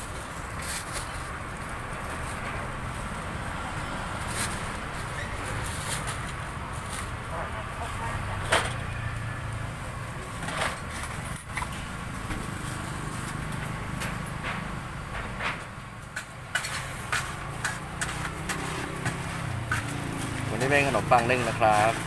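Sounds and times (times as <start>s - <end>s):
low traffic rumble: 0.0s - 22.0s
sharp clicks and knocks: 13.5s - 20.4s.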